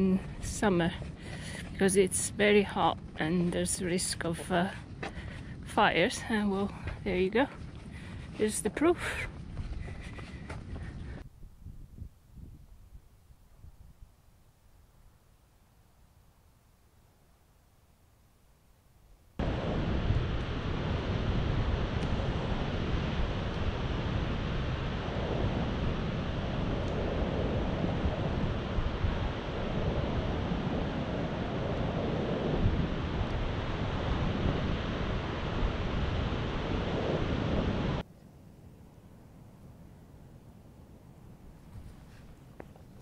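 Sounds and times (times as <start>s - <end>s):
wind blowing on microphone: 0.0s - 14.2s, 19.4s - 38.0s
surf breaking on shore: 19.4s - 38.0s.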